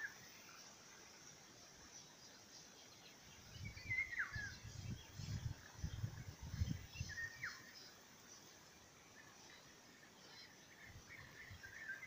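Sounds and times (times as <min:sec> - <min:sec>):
birds chirping: 0:00.0 - 0:12.0
wind buffeting microphone: 0:03.5 - 0:07.5.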